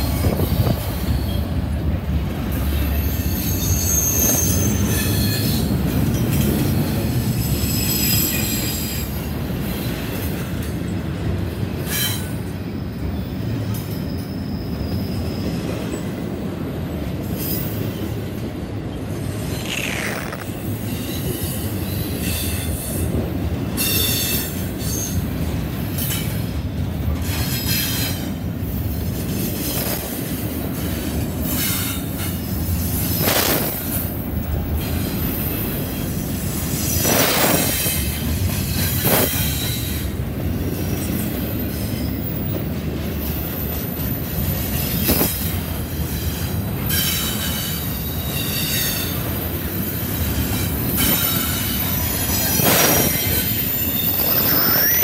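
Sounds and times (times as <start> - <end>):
freight train rumbling on rails: 0.0 - 55.0
high metallic squeals: 3.0 - 5.7, 51.0 - 55.0.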